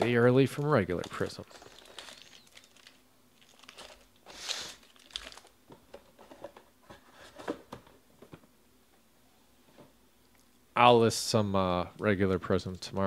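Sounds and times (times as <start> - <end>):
foil packs crinkling: 0.5 - 5.6.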